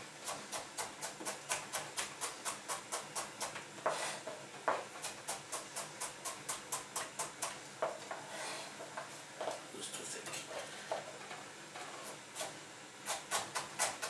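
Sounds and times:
knife chopping on plastic board: 12.4s - 14.0s.

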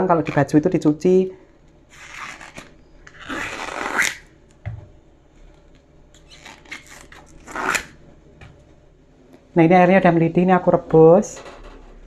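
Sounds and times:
crisp rustling and tearing of bracts: 1.9s - 4.2s, 6.2s - 8.0s.

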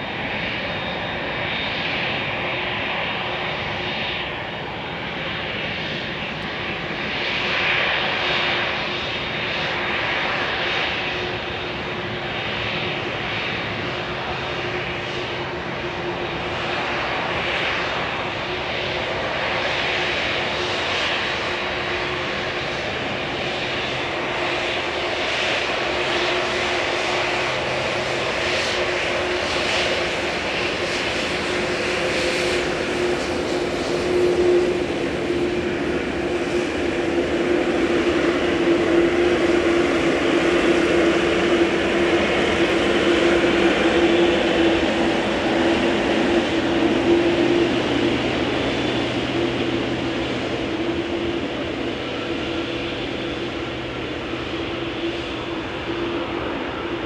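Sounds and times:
jet engines idling: 0.0s - 57.0s.

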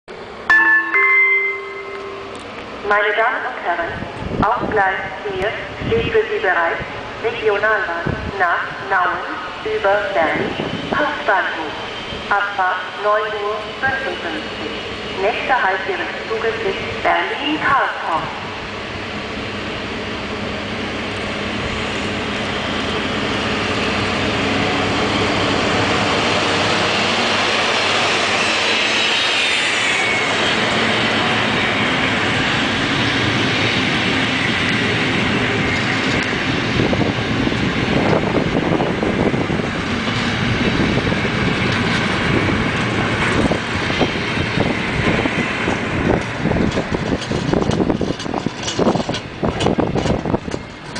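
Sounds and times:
diesel locomotive engine whine: 0.1s - 50.9s
train wheels rumbling on rails: 0.1s - 50.9s
wheels clicking over rail joints: 45.6s - 50.9s.

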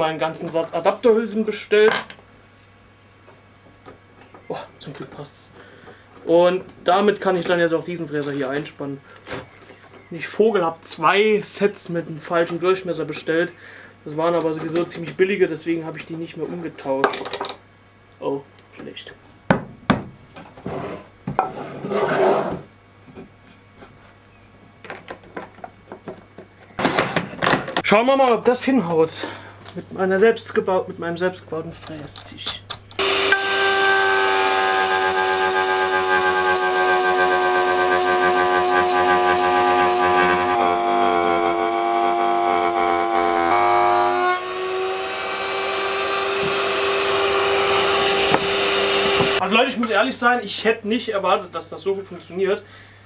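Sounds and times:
wooden board scraping table: 20.6s - 22.7s
router whining while milling wood: 33.0s - 49.4s.

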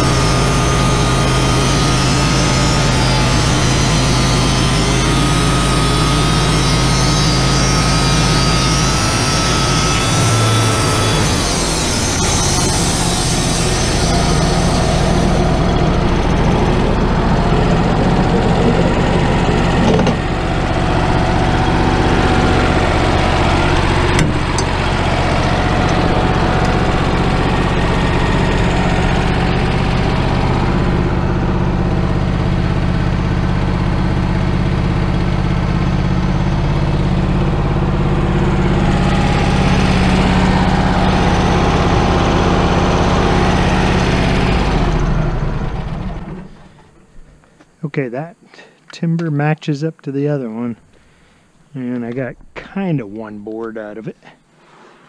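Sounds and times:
sawmill engine running: 0.0s - 48.0s.

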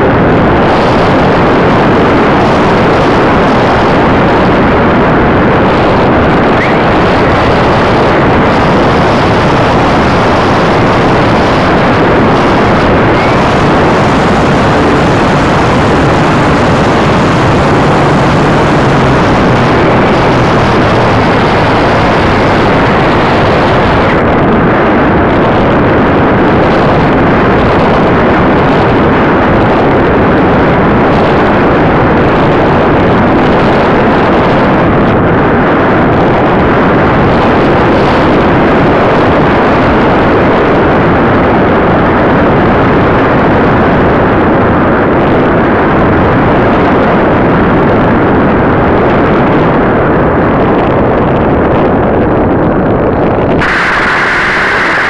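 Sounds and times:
air rushing: 0.0s - 27.2s, 52.6s - 55.0s.

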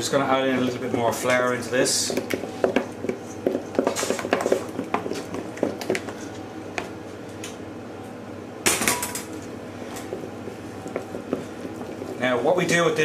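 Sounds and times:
utensil scraping a bowl: 0.5s - 6.4s, 10.0s - 13.0s.

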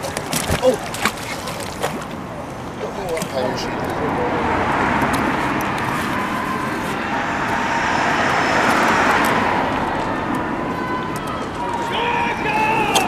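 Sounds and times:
steady engine noise: 2.7s - 13.0s.

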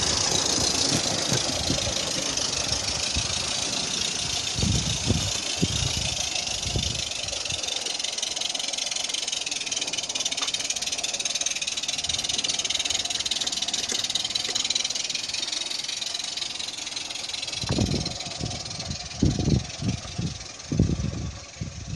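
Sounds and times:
low thumps and rumbles: 0.0s - 7.4s, 17.6s - 21.9s
steam locomotive hissing: 0.0s - 21.9s.

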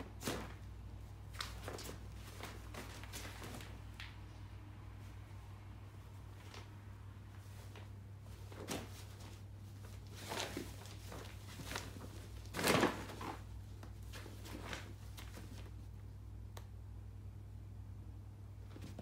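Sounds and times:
fabric rustling and bumping: 0.0s - 4.2s, 6.1s - 15.9s
kittens scuffling: 0.0s - 16.0s
steady low hum: 0.0s - 19.0s.

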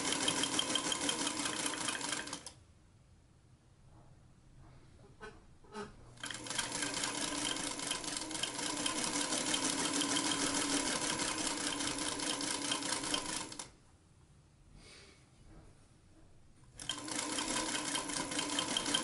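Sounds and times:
sewing machine stitching: 0.0s - 2.5s, 6.2s - 13.7s, 16.8s - 19.0s.

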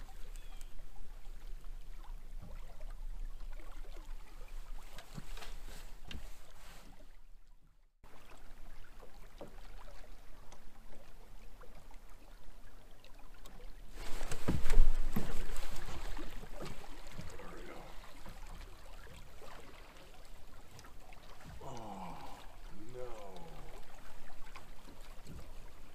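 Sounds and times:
river water running: 0.0s - 25.9s
rustling noise: 4.8s - 7.1s, 13.9s - 17.1s.

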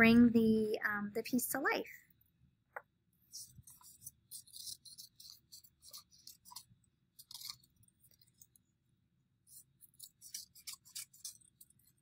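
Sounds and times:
paper crinkling: 3.3s - 8.6s, 9.5s - 12.0s
scissors snipping paper: 3.4s - 8.6s, 9.5s - 12.0s.

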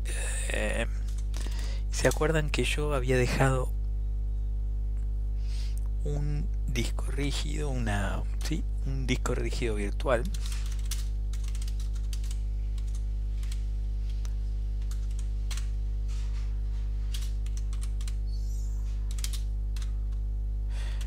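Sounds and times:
low hum: 0.0s - 21.0s
keyboard typing: 9.5s - 13.6s, 14.8s - 15.8s, 17.0s - 18.2s, 18.9s - 20.2s.

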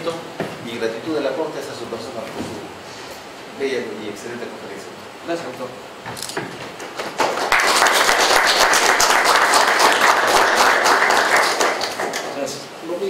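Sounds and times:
audience applauding: 6.8s - 12.6s.

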